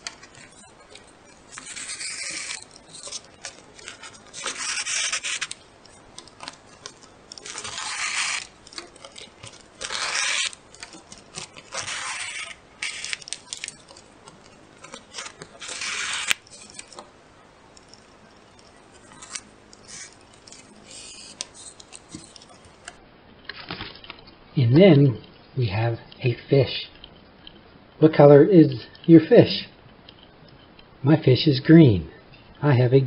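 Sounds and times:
paper sheet rustling: 0.0s - 17.1s, 17.7s - 24.2s.

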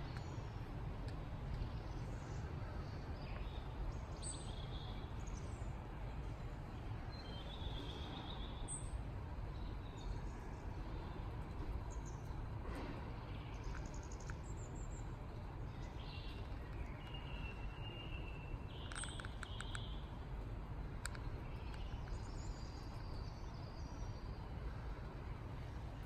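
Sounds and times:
faint sharp clicks: 0.0s - 2.4s, 11.4s - 23.9s
low background rumble: 0.0s - 26.0s.

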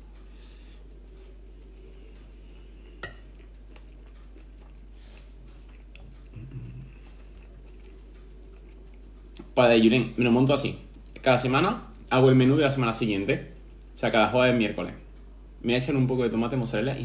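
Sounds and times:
low room hum: 0.0s - 17.0s
person chewing: 0.2s - 9.6s.

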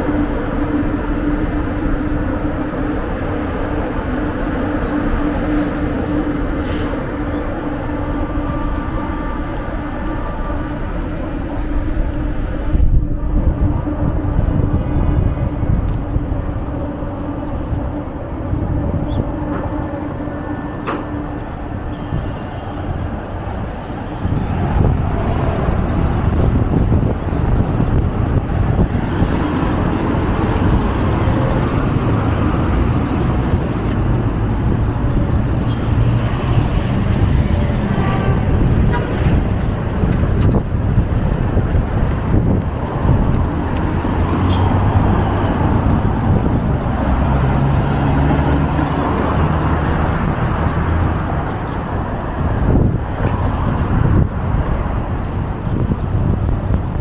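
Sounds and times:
steady low hum: 0.0s - 37.8s
cars and minibus driving past: 0.0s - 57.0s.

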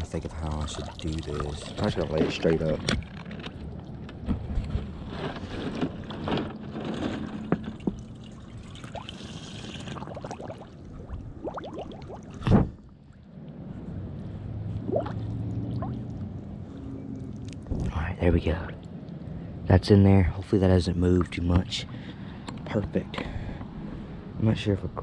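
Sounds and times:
shallow water splashing: 0.6s - 4.1s, 6.0s - 13.3s, 14.8s - 16.6s.

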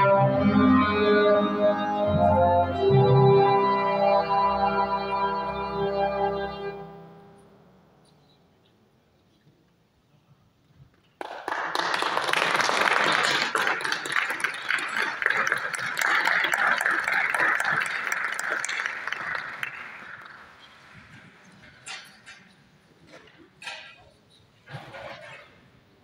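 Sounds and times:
audience applauding: 11.2s - 21.6s.

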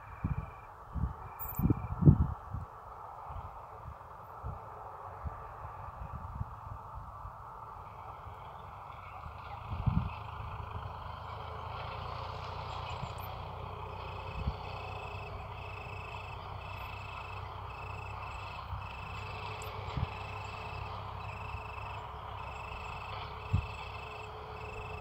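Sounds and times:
insect chirping: 0.0s - 2.1s, 12.6s - 25.0s.

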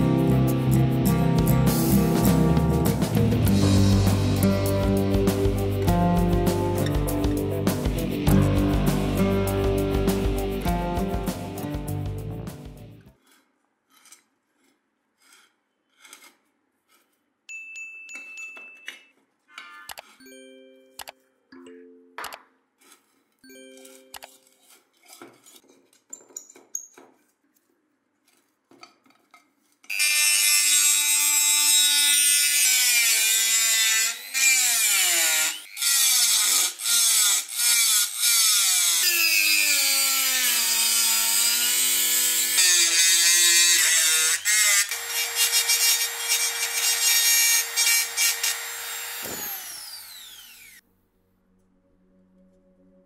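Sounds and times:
rotary tool grinding metal: 13.1s - 17.2s, 29.9s - 50.8s.

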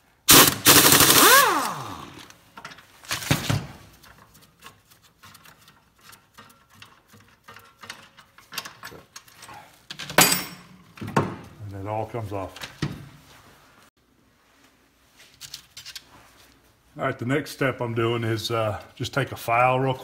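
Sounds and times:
impact wrench hammering: 0.3s - 2.3s.

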